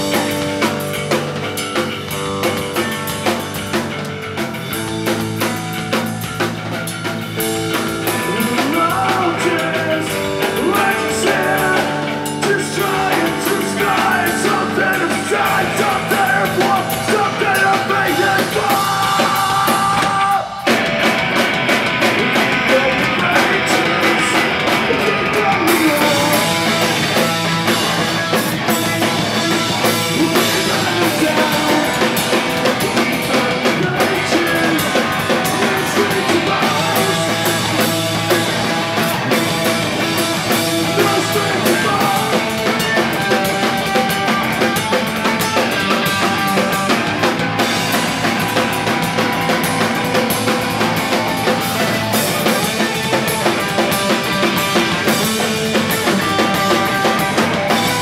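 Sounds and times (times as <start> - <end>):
distorted electric guitar: 0.0 - 58.0
drum kit: 0.0 - 58.0
electric bass: 0.0 - 58.0
person singing lead vocal: 7.6 - 21.4, 22.0 - 58.0.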